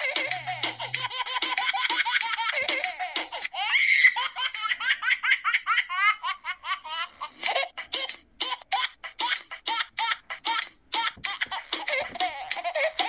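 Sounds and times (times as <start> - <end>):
toddler laughing: 5.9 - 13.0.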